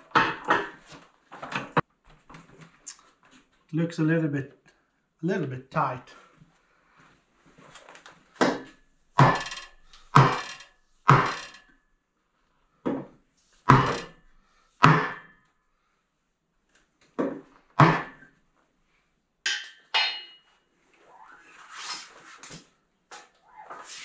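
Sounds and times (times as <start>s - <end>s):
hammer knocking on wooden block: 9.2s - 9.5s, 10.2s - 10.5s, 11.1s - 11.4s, 13.7s - 14.1s, 14.8s - 15.2s.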